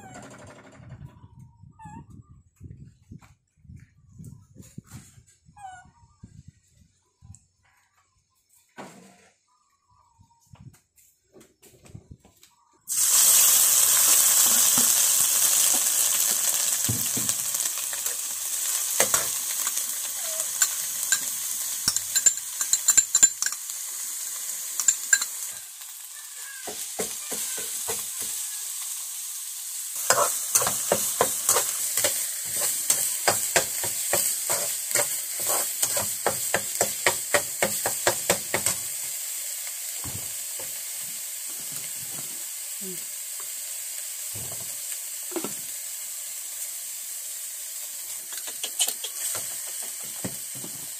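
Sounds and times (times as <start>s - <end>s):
food sizzling in a pan: 12.9s - 50.9s
utensil scraping a pan: 30.0s - 37.7s.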